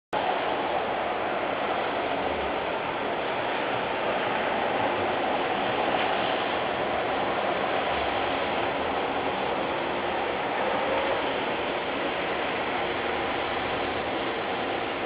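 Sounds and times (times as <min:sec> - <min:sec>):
heavy rain on wet road: 0:00.2 - 0:15.0.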